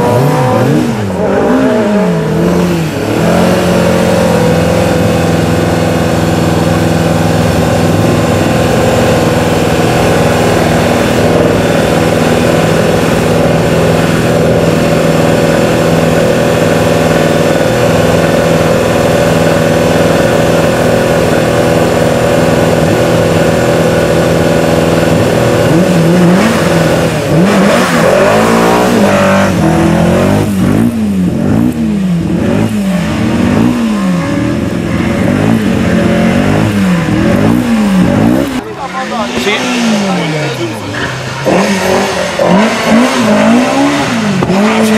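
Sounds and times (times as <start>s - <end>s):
racing engine idling and revving: 0.0s - 44.9s.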